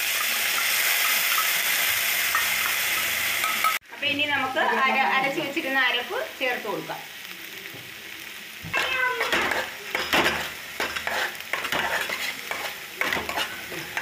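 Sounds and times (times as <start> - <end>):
light sizzling: 0.0 - 14.0
spoon scraping in a pan: 8.8 - 14.0.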